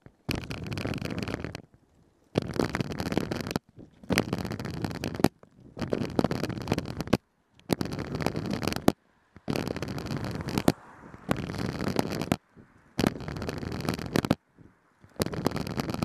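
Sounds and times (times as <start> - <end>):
skate wheels rolling on concrete: 0.0 - 16.0.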